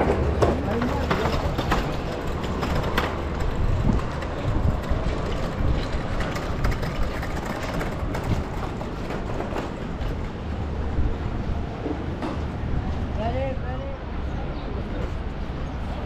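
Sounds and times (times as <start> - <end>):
scattered clicks and knocks: 0.0 - 10.4
low street rumble: 0.0 - 16.0.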